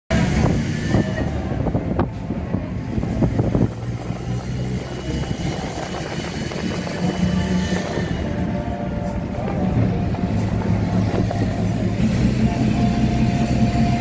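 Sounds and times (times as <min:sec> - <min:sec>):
engine and road rumble: 0:00.1 - 0:14.0.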